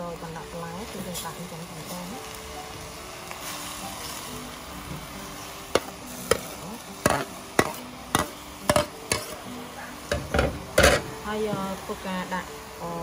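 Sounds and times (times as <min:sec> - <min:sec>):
faint background music: 0:00.0 - 0:13.0
faint sizzle in pot: 0:00.0 - 0:13.0
utensil clinking on metal pot: 0:05.8 - 0:09.4, 0:10.1 - 0:11.1.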